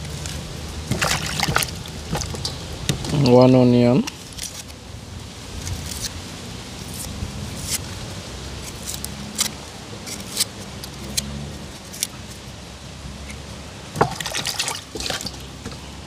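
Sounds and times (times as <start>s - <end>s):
low steady hum: 0.0s - 16.0s
knife scraping onion skin: 5.6s - 6.2s, 6.8s - 7.9s, 8.6s - 12.4s.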